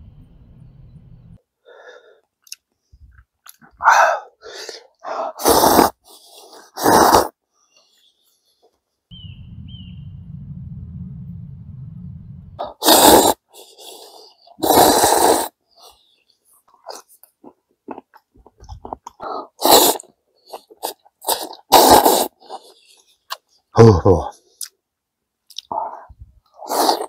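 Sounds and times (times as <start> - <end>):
bird chirping: 0.0 - 1.4, 9.1 - 10.6
low rumble: 0.0 - 1.4, 9.1 - 12.6
chewing and mouth sounds: 2.4 - 3.8, 16.6 - 23.6, 25.5 - 25.8
man slurping noodles: 4.1 - 7.4, 12.6 - 15.9, 18.6 - 23.0, 26.6 - 27.0.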